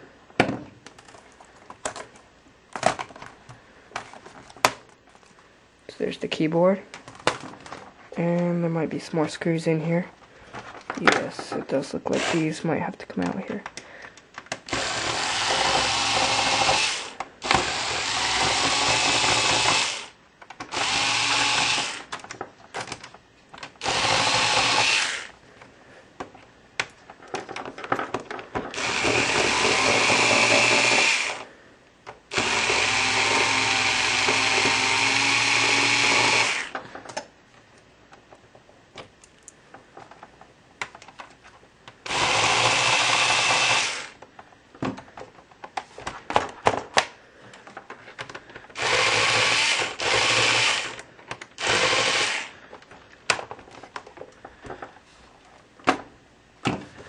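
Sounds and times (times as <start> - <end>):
power screwdriver motor whirring: 12.2 - 12.5, 14.7 - 20.1, 20.7 - 22.1, 23.8 - 25.3, 28.7 - 31.4, 32.3 - 36.8, 42.1 - 44.2, 48.8 - 51.0, 51.6 - 52.5.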